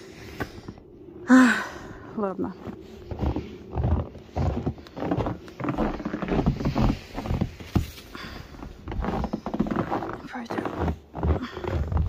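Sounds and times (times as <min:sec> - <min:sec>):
footsteps in deep snow: 0:02.2 - 0:12.0.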